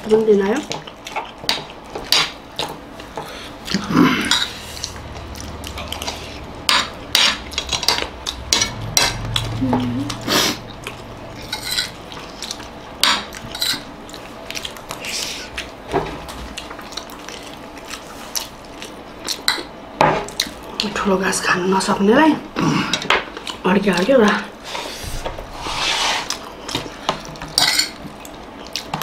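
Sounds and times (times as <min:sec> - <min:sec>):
cutlery scraping a plate: 0:11.4 - 0:12.0, 0:13.0 - 0:13.8, 0:27.5 - 0:28.0.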